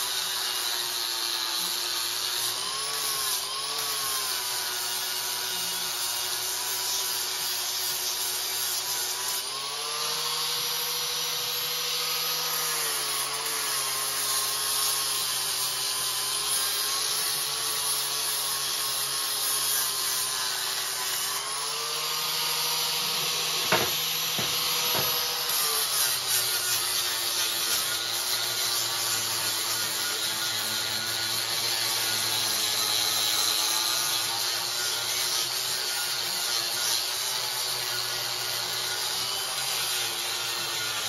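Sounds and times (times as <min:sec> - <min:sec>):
angle grinder cutting metal: 0:00.0 - 0:41.0
sharp knocks: 0:23.6 - 0:25.3.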